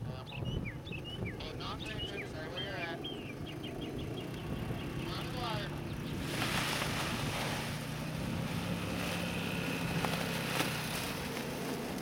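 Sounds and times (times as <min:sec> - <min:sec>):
small engine running: 0:02.8 - 0:12.0
steady rushing noise: 0:04.5 - 0:12.0.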